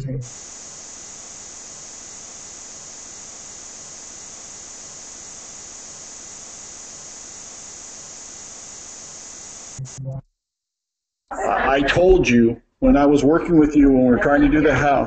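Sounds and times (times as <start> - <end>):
static hiss: 0.0 - 10.2.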